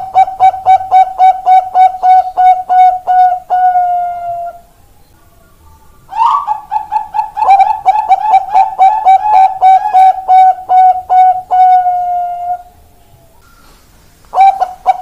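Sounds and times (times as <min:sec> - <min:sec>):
dove cooing: 0:00.0 - 0:04.7, 0:06.1 - 0:15.0.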